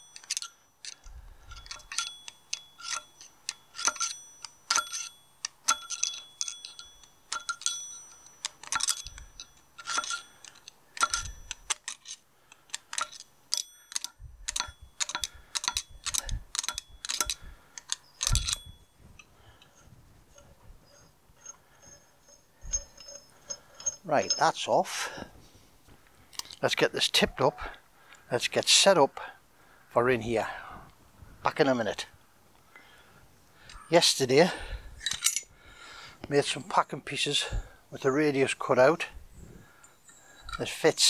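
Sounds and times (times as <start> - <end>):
metal tool clicking on nut: 0.0 - 24.6
faint handling sounds: 0.0 - 27.3.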